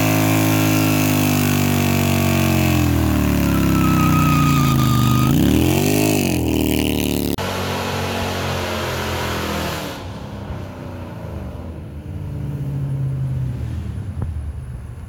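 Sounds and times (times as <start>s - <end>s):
car engine revving: 0.0s - 14.2s
tyres screeching in wheelspin: 1.8s - 6.5s.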